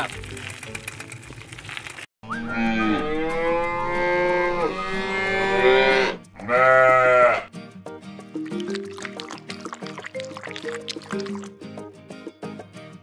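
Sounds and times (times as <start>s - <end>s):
cow mooing: 2.4s - 7.5s.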